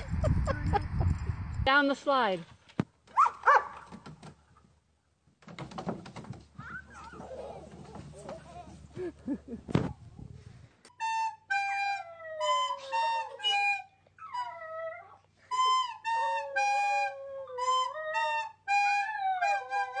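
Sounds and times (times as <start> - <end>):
recorder playing held notes: 10.9 - 14.6, 15.5 - 20.0
dog howling: 16.1 - 20.0.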